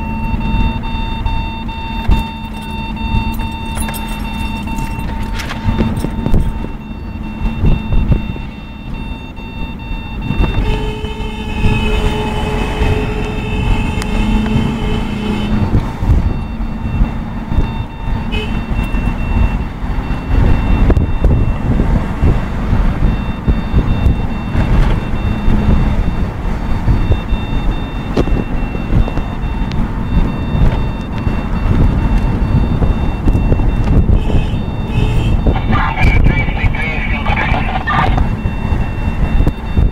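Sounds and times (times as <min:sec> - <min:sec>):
engine and road rumble: 0:00.0 - 0:39.9
steady high tone: 0:34.8 - 0:38.4.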